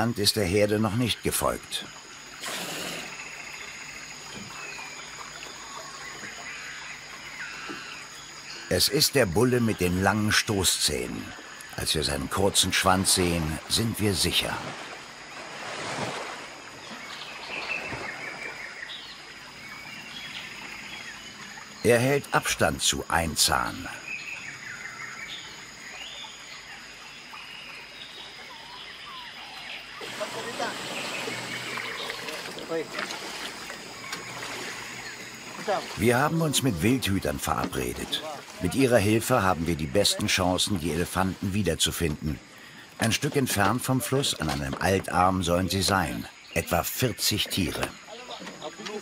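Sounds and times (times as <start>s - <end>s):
insects droning: 0.0s - 49.0s
water lapping and trickling: 0.0s - 49.0s
bird chirps and calls: 28.2s - 49.0s.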